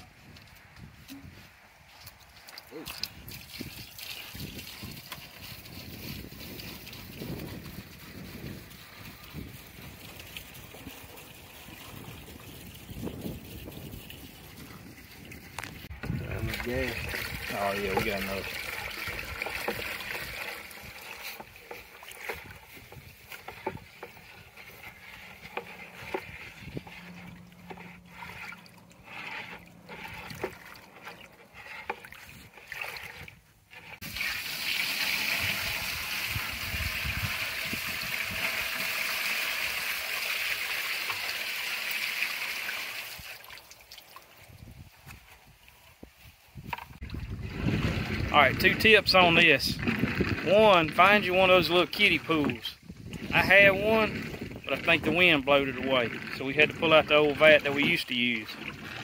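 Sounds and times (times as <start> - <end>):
wind rumble on microphone: 0.0 - 2.2, 3.0 - 18.4, 26.0 - 27.4, 35.3 - 38.6, 44.4 - 59.0
liquid trickling into bucket: 2.0 - 44.8, 46.7 - 59.0
liquid pouring and splashing: 2.3 - 44.7, 46.9 - 48.3, 52.0 - 59.0.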